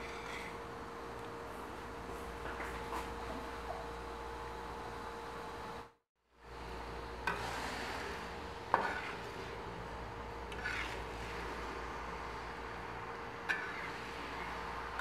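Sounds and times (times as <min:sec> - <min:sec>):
syrup bubbling and sizzling: 0:07.2 - 0:15.0.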